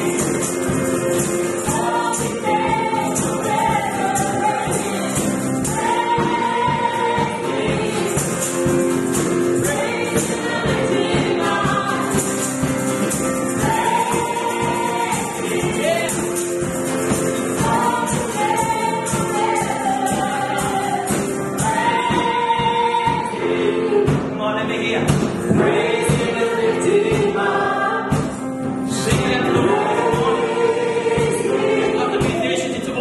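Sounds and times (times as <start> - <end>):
tambourine shaking: 0.0 - 23.4
voices singing gospel: 0.0 - 33.0.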